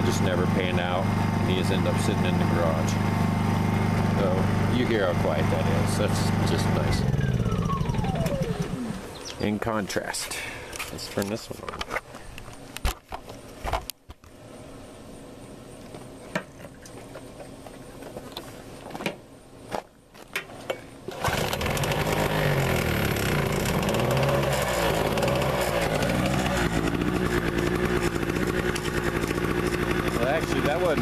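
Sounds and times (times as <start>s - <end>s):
generator engine running loud: 0.0s - 9.2s, 21.1s - 31.0s
quiet generator hum: 0.0s - 31.0s.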